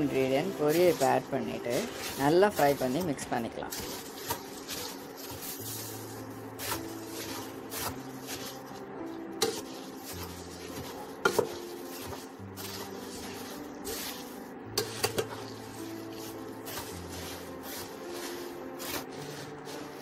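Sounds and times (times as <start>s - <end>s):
spatula scraping puffed rice: 0.0s - 20.0s.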